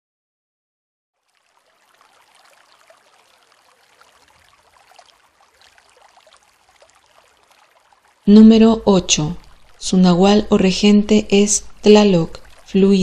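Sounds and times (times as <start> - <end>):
rain patter: 1.2 - 13.0
trickling water: 1.2 - 13.0.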